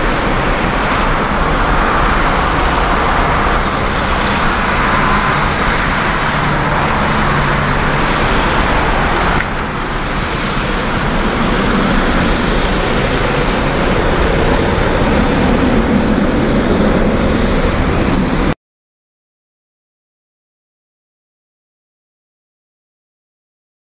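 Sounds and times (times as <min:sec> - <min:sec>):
jet engine noise: 0:00.0 - 0:18.6.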